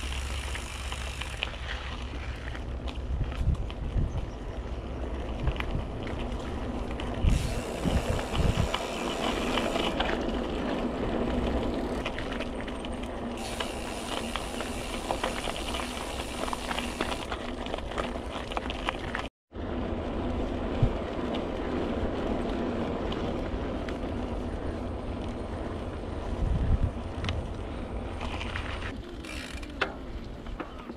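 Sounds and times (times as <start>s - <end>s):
bike tyres crunching on gravel: 0.0s - 29.8s
stones clicking and bike rattling: 0.0s - 30.9s
wind rumble on microphone: 1.6s - 12.7s, 19.0s - 30.9s.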